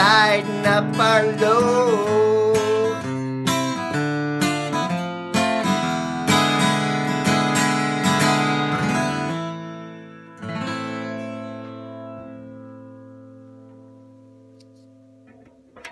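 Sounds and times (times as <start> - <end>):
acoustic guitar strumming chords: 0.0 - 15.9.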